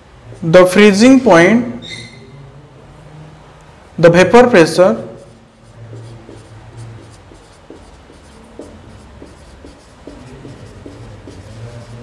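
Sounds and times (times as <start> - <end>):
marker writing on whiteboard: 0.2 - 1.2, 5.0 - 12.0.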